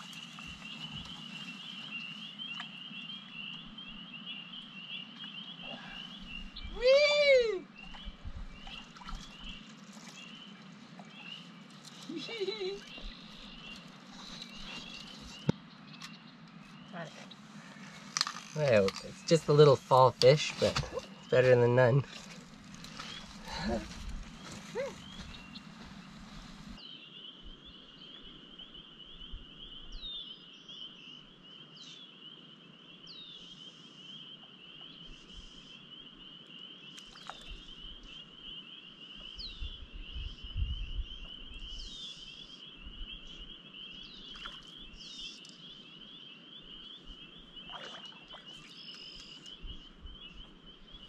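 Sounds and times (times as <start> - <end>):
frogs trilling: 30.8 - 51.0.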